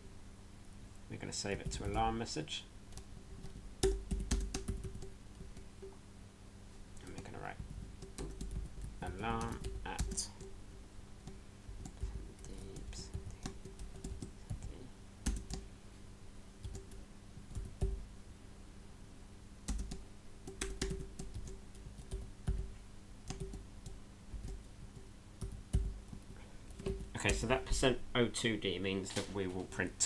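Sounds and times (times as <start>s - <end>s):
faint low hum: 0.0s - 30.0s
keyboard typing: 2.9s - 6.0s, 7.0s - 10.6s, 11.2s - 15.7s, 16.6s - 18.0s, 19.7s - 22.7s, 23.3s - 27.5s.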